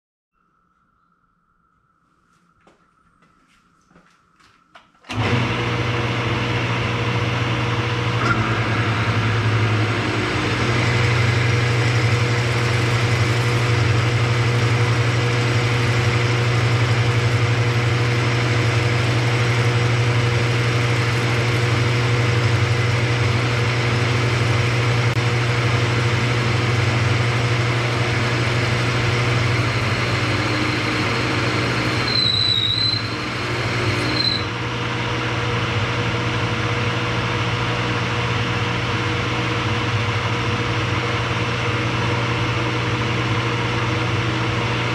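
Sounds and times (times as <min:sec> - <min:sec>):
milling machine cutting metal: 0:05.1 - 0:35.0
high cutter squeal: 0:30.2 - 0:34.6.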